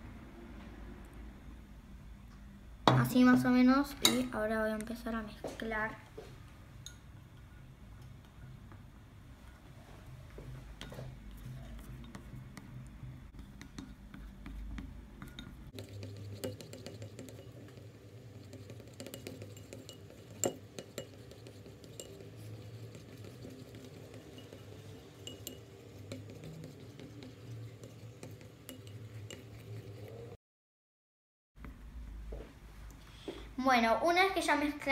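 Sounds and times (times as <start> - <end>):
low steady hum: 0.0 - 30.4
stick stirring glue in a bowl: 9.4 - 30.4
stick clinking on ceramic bowl: 24.2 - 26.3.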